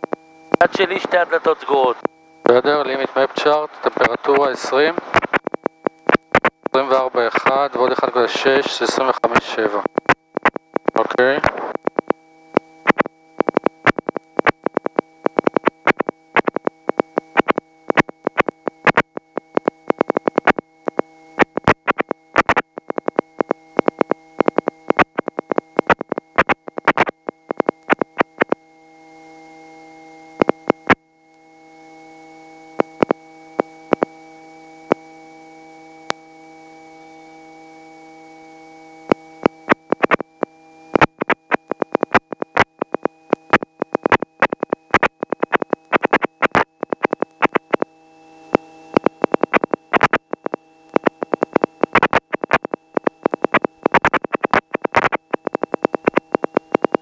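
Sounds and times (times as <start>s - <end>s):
electrical hum with high whine: 0.0s - 57.0s
crackling clicks: 1.6s - 8.2s, 8.8s - 28.6s, 30.4s - 31.0s, 32.7s - 35.1s, 35.7s - 36.3s, 39.0s - 40.3s, 40.9s - 47.9s, 48.5s - 57.0s.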